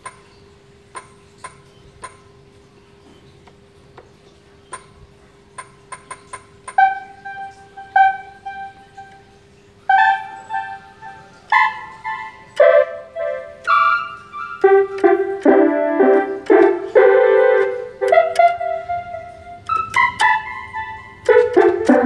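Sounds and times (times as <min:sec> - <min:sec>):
faint steady hum: 0:00.0 - 0:22.0
electronic keyboard notes: 0:04.6 - 0:22.0.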